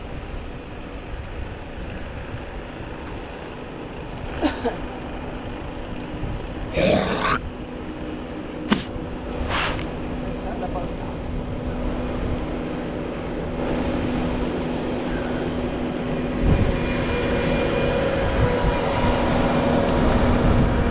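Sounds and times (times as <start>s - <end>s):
wind noise on microphone: 6.0s - 6.8s, 15.5s - 20.9s
sharp knock: 8.7s - 8.9s.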